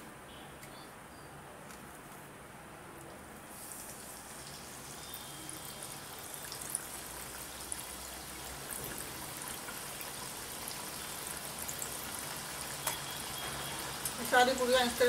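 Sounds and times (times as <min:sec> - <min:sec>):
deep-frying sizzle with crackles: 0:03.1 - 0:15.0.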